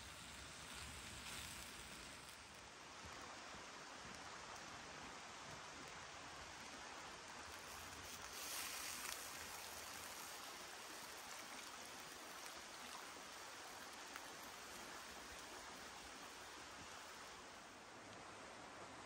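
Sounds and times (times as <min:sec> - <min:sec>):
beef sizzling in a hot wok: 0:00.0 - 0:02.6, 0:07.4 - 0:15.4.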